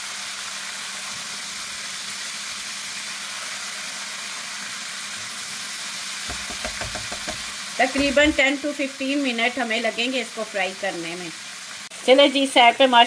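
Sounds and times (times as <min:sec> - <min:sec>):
chicken deep-frying in oil: 0:00.0 - 0:13.0
soft knocks: 0:06.3 - 0:08.4.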